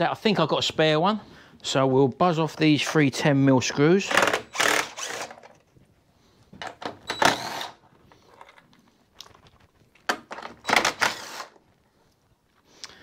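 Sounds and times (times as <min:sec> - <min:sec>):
cordless drill running: 0:04.1 - 0:05.4, 0:07.1 - 0:07.8, 0:10.7 - 0:11.6.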